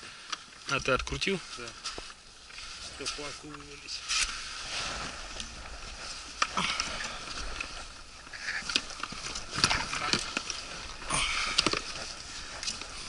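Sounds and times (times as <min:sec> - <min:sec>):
clothing rustling: 0:01.4 - 0:13.0.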